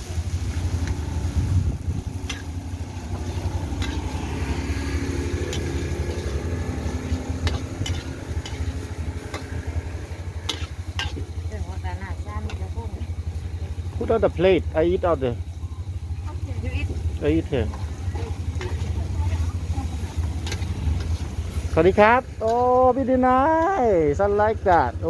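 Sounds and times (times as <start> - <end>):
low rumble: 0.0 - 23.3
noodles frying: 0.0 - 25.0
metal spatula scraping a wok: 0.3 - 11.5, 17.7 - 21.8.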